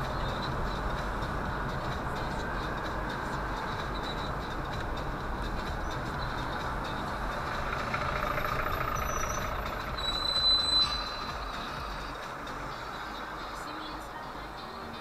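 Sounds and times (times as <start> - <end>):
bus alongside: 0.0 - 15.0
city traffic noise: 0.0 - 15.0
brief high squeal: 9.0 - 11.6.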